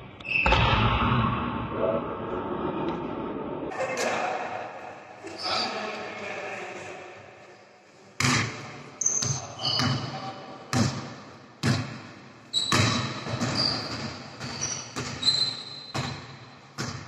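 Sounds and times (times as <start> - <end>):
sneakers squeaking on court: 9.0 - 11.0, 12.5 - 17.0.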